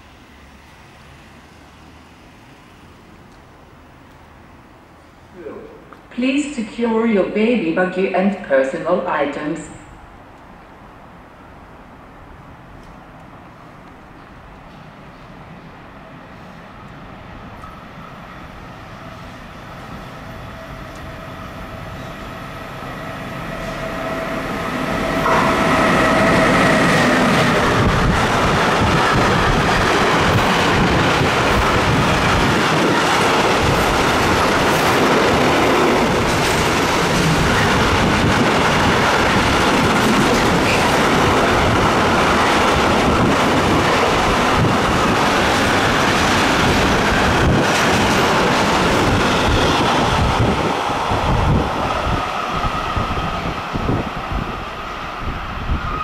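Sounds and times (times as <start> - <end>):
train wheels rumbling on rail: 12.2 - 56.0
locomotive whine: 17.5 - 56.0.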